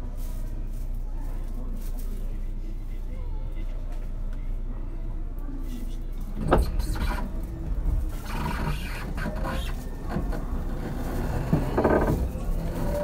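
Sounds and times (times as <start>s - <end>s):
train wheels rumbling on rails: 6.4s - 13.0s.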